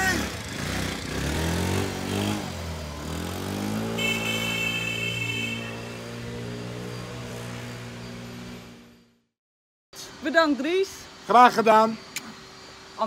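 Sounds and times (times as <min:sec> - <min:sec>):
motor scooter engine revving: 0:00.0 - 0:09.0.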